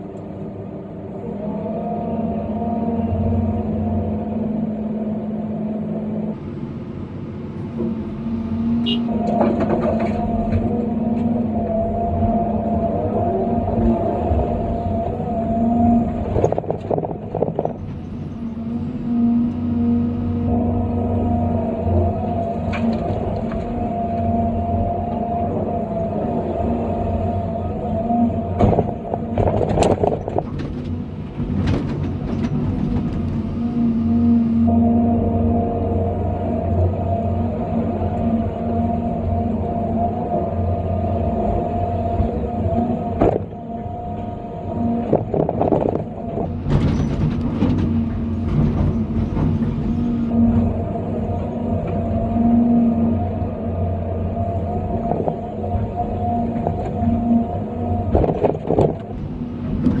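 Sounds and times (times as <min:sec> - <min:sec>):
excavator diesel engine and hydraulics: 0:00.0 - 1:00.0.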